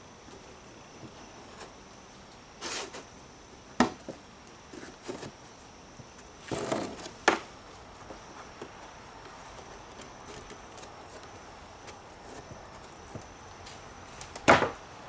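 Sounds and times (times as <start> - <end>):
boards scraping: 2.6 - 3.1, 3.8 - 14.8
sharp wooden knocks: 14.4 - 14.8.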